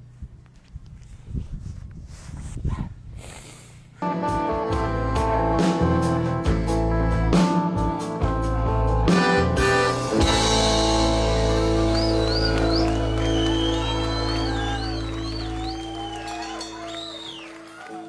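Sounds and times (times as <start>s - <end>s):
button accordion playing chords: 9.1s - 17.1s
high whistle-like tone: 11.7s - 17.7s.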